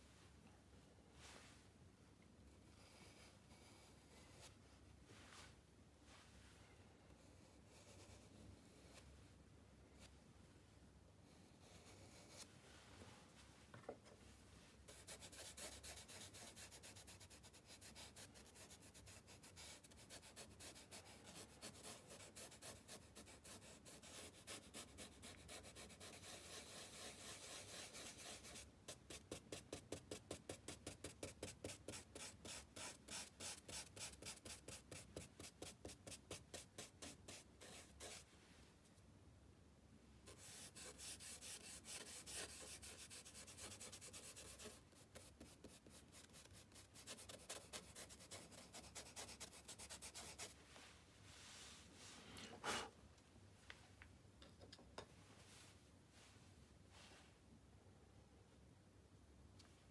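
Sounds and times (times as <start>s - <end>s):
brush rubbing on paper: 14.8s - 38.3s, 40.3s - 50.8s.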